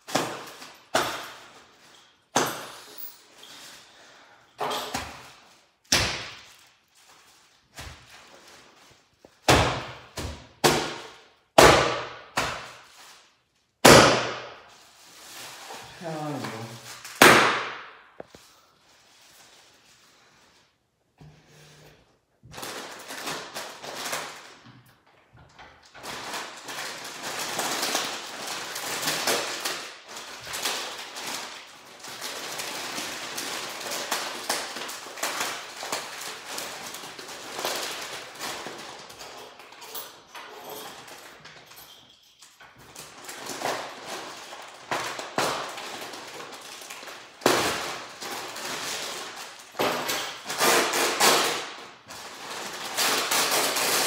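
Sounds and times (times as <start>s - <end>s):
foil bags crinkling: 5.1s - 9.4s, 14.6s - 17.2s, 22.4s - 25.1s, 25.8s - 41.5s, 42.8s - 54.0s.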